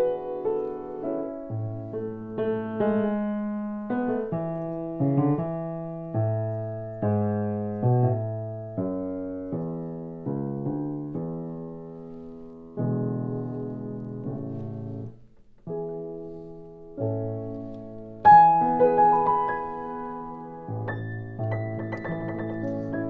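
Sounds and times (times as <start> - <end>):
grand piano playing: 0.0 - 23.0.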